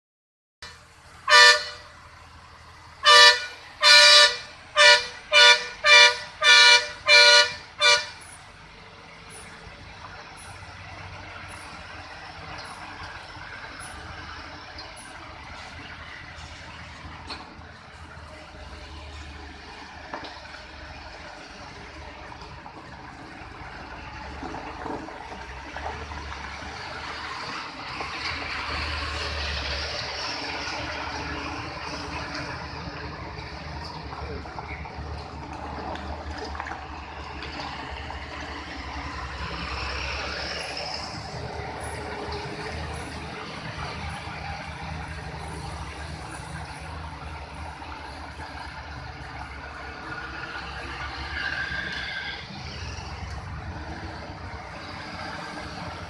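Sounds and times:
truck horn blasts: 0.6 - 2.0, 3.0 - 8.4
diesel truck engines rumbling: 0.6 - 56.0.

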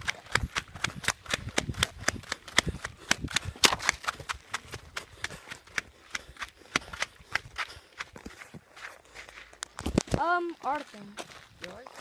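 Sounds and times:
footsteps on a dirt path: 0.0 - 12.0.

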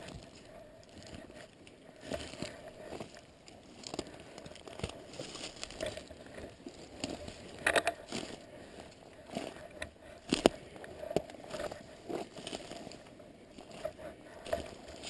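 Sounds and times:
footsteps crunching through dry leaves: 0.0 - 15.0
twigs snapping: 0.9 - 8.4, 9.3 - 13.0.

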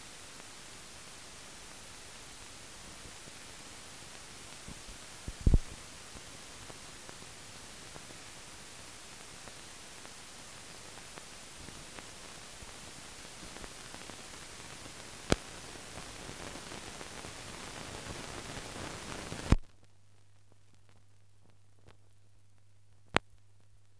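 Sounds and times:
film transfer hiss: 0.0 - 23.9.

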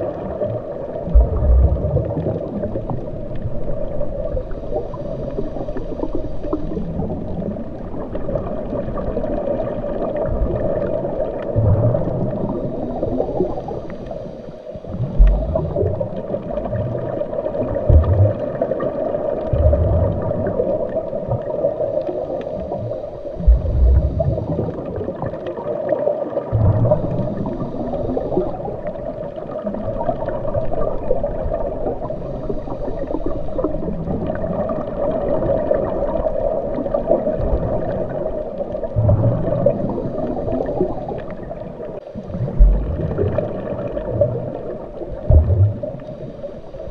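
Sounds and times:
muffled underwater water rush: 0.0 - 46.9
low thumps: 15.0 - 15.8, 17.9 - 18.3, 19.6 - 20.2, 23.4 - 24.4, 42.4 - 43.1, 45.3 - 45.8.

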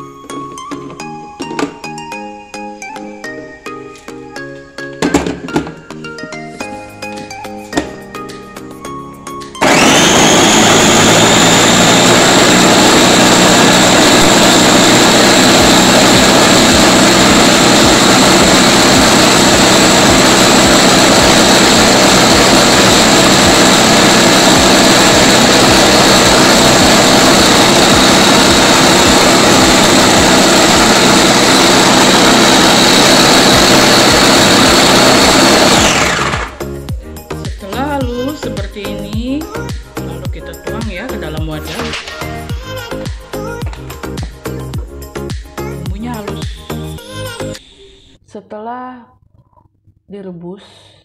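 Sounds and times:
electric food chopper motor whining: 9.6 - 36.7.

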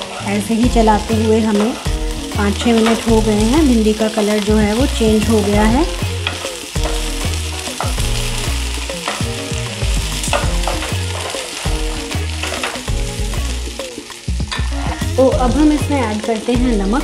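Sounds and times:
wooden spatula scraping a pan: 0.0 - 13.0
vegetables sizzling: 0.0 - 17.0.

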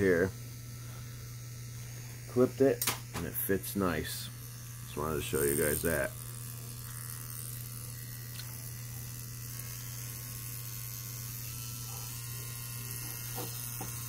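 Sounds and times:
tattoo pen motor buzzing: 0.0 - 14.0.

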